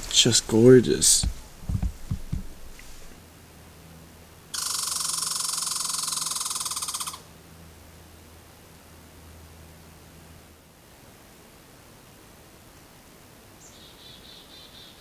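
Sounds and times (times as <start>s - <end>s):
animal rattling call: 4.5s - 7.3s.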